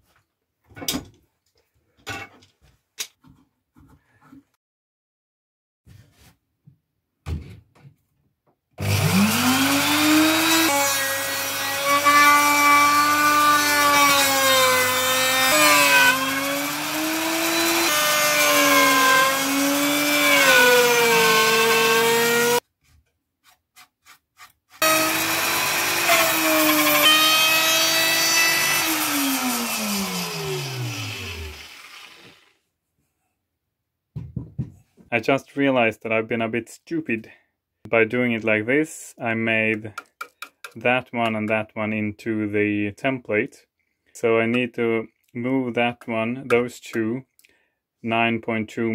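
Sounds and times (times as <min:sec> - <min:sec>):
router motor winding down: 0:08.8 - 0:11.8, 0:16.1 - 0:22.6, 0:24.8 - 0:32.5
electric router cutting wood: 0:08.8 - 0:22.6, 0:24.8 - 0:32.5.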